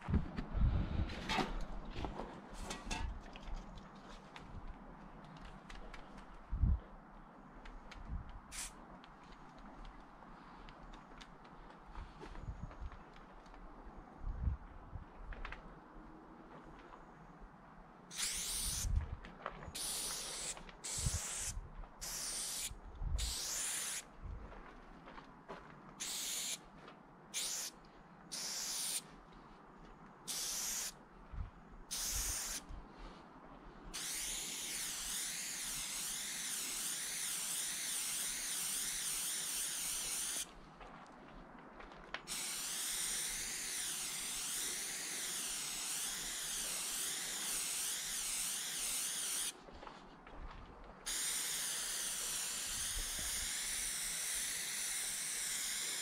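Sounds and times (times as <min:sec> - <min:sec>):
spray paint can hissing: 0:08.5 - 0:08.8, 0:18.1 - 0:19.0, 0:19.8 - 0:24.1, 0:26.0 - 0:26.6, 0:27.3 - 0:29.0, 0:30.3 - 0:31.0, 0:31.9 - 0:32.6, 0:33.9 - 0:40.5, 0:42.3 - 0:49.6, 0:51.0 - 0:56.0.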